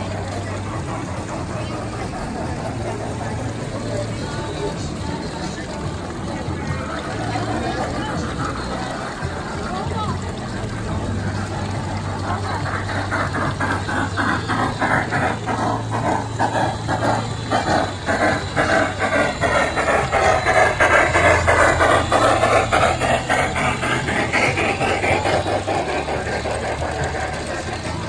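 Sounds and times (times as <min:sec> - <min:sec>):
model train running on track: 0:00.0 - 0:28.0
low hum: 0:08.3 - 0:28.0.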